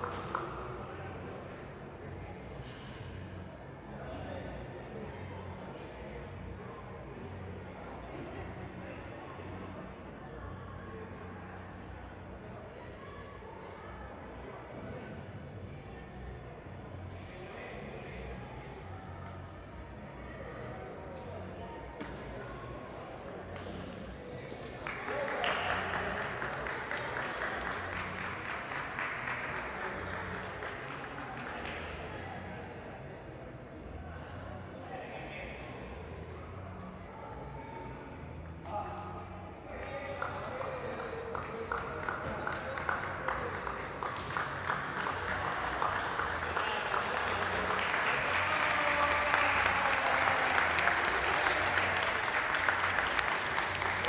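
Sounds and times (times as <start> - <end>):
spectators applauding: 24.6 - 31.8, 40.2 - 54.0.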